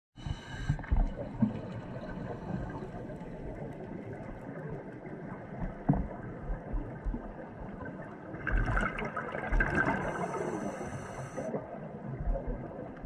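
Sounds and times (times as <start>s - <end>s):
faint ticks: 0.2s - 7.9s
underwater rumble of moving water: 0.2s - 13.0s.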